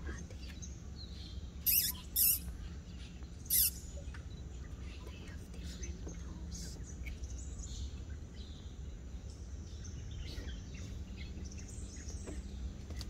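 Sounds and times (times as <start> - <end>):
low steady hum: 0.0 - 13.0
animal shrill squeaking calls: 1.6 - 2.5, 3.5 - 3.9.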